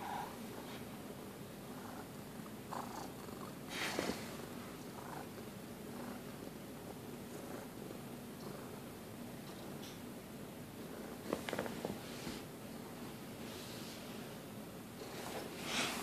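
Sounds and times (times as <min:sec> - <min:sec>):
cat purring: 0:01.6 - 0:09.8.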